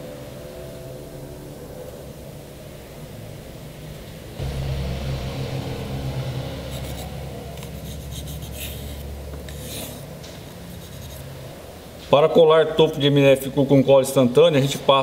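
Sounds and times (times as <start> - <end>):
steady low hum: 4.2 - 11.9.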